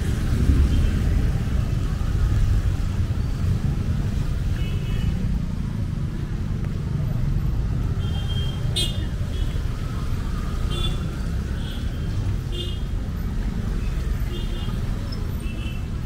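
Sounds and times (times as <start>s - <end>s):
low city rumble: 0.0s - 16.0s.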